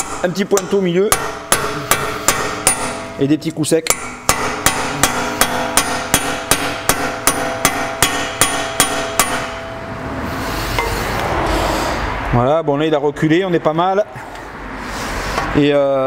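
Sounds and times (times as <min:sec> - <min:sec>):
hammer striking metal punch: 0:00.0 - 0:10.0, 0:10.7 - 0:11.3
metallic ringing: 0:00.0 - 0:11.7.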